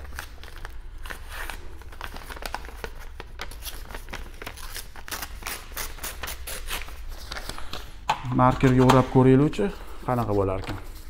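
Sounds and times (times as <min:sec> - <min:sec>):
paper crinkling and tearing: 0:00.0 - 0:07.9.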